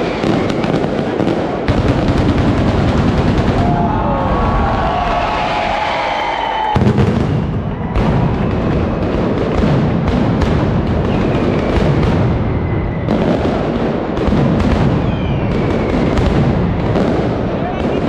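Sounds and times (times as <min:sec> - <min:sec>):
firecrackers banging rapidly: 0:00.0 - 0:18.0
whistling rockets: 0:00.0 - 0:18.0.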